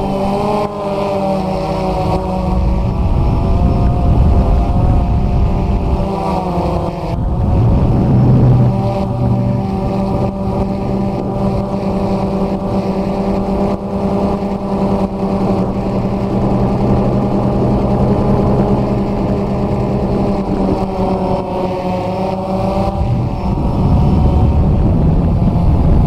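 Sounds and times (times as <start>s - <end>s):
drone propellers whirring: 0.0s - 26.0s.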